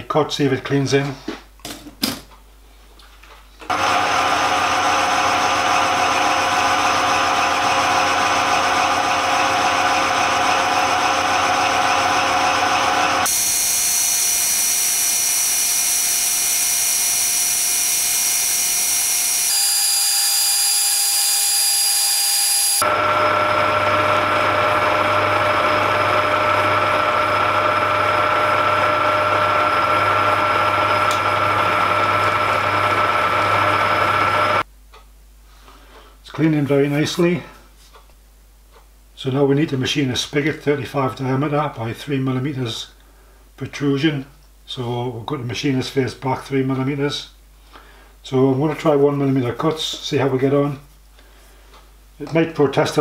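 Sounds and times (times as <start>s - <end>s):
metal lathe humming: 3.7s - 34.6s.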